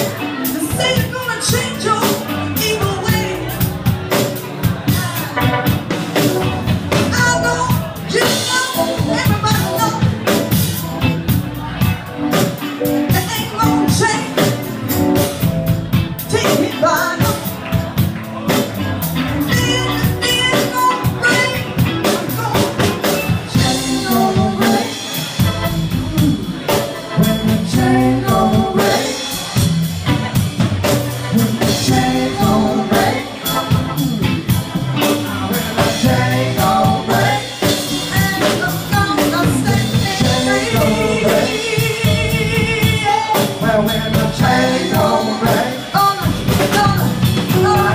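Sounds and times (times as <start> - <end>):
bass guitar: 0.0 - 47.9
drum kit: 0.0 - 47.9
electric guitar: 0.0 - 47.9
woman singing: 0.6 - 3.6, 7.1 - 10.1, 16.2 - 17.5, 19.4 - 22.7, 23.5 - 26.4, 27.2 - 29.6, 31.3 - 33.8, 35.8 - 47.9.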